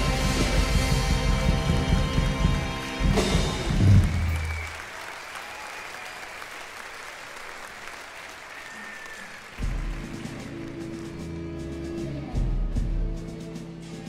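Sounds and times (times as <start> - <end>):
music: 0.0 - 4.8, 8.7 - 14.0
audience applauding: 0.0 - 11.7.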